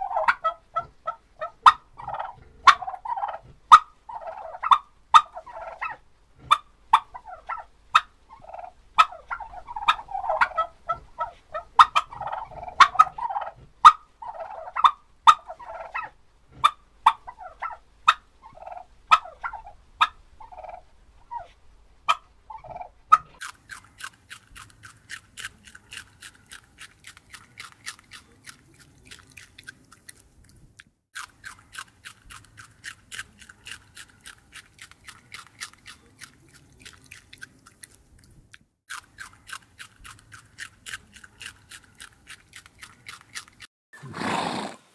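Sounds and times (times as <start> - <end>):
turkeys gobbling: 0.0 - 23.4
rabbit chewing carrot: 0.0 - 44.3.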